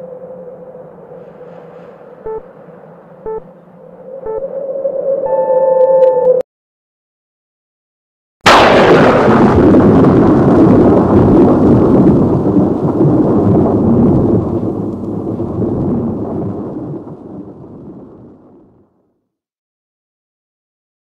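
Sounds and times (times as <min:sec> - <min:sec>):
boom with thunder-like rumble: 0:08.5 - 0:19.0.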